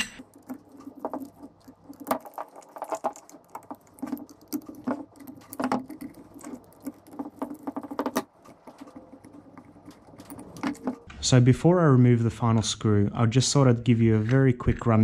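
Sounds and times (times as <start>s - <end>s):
hex key clicking and scraping: 3.8s - 11.1s.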